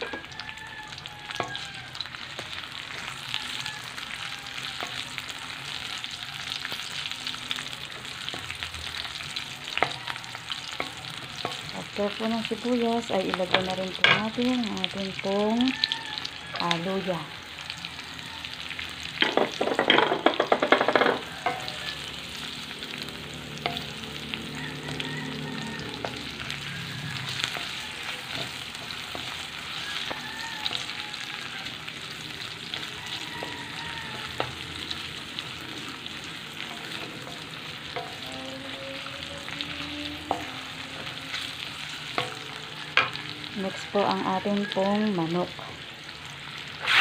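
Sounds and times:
food sizzling in hot oil: 0:00.0 - 0:47.0
spatula scraping a wok: 0:07.5 - 0:12.2, 0:24.9 - 0:43.3, 0:46.6 - 0:47.0
spatula tapping a wok: 0:19.2 - 0:21.7.

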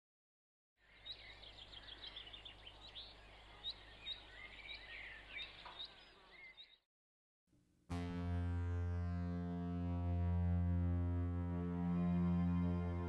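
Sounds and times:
birds chirping and whistling: 0:01.0 - 0:06.8.

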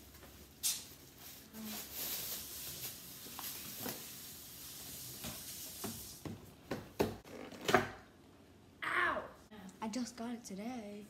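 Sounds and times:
plastic bag crinkling: 0:00.6 - 0:05.7.

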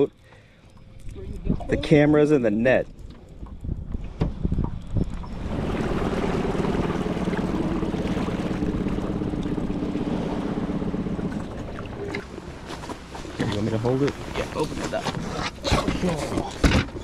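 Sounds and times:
wind on microphone: 0:01.0 - 0:02.0, 0:02.9 - 0:12.3
outboard motor running: 0:03.0 - 0:17.0.

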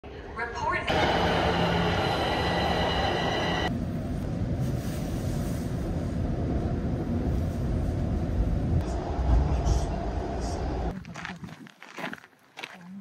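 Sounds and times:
subway train high-pitched whine: 0:00.8 - 0:10.9
train rumbling: 0:00.8 - 0:11.0.

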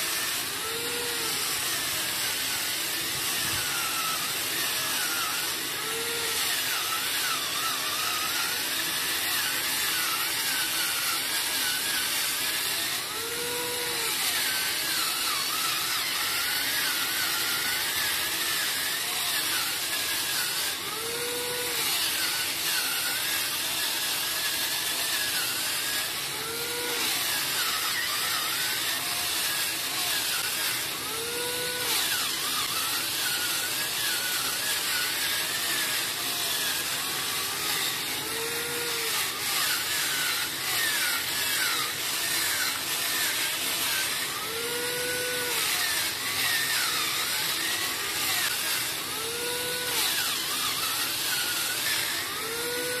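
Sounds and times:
electric coconut scraper whirring: 0:00.0 - 0:53.0.

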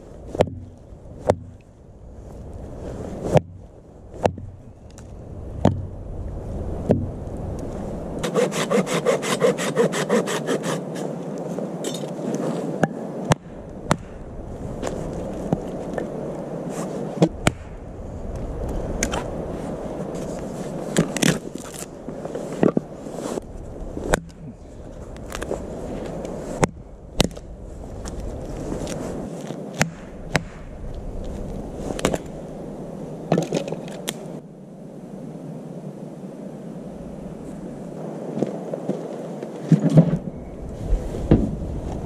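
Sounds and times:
background hiss: 0:00.0 - 0:42.0
hatchet splitting log: 0:00.3 - 0:01.6, 0:03.3 - 0:04.6, 0:05.6 - 0:05.9, 0:08.2 - 0:11.0, 0:12.8 - 0:14.2, 0:24.0 - 0:24.4, 0:29.7 - 0:30.7.

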